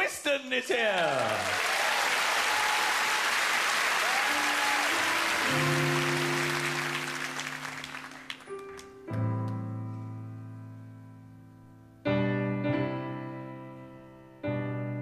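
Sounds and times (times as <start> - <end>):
audience applauding: 0.9 - 9.1
music with long held notes: 4.2 - 15.0
loud piano chord: 4.8 - 15.0.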